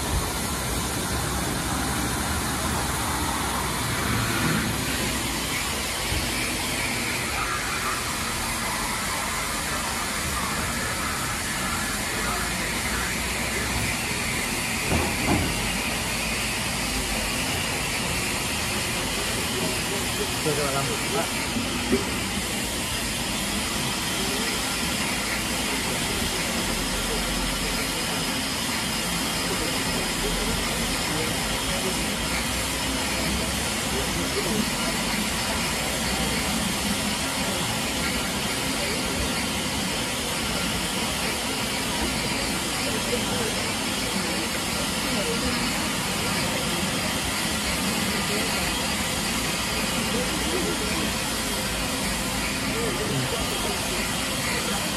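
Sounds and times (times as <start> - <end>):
steam hissing: 0.0 - 54.9.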